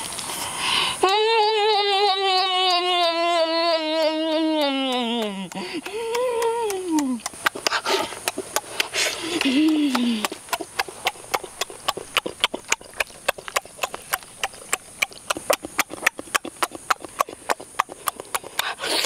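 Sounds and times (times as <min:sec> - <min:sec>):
wet chewing and lip-smacking: 0:04.0 - 0:19.0.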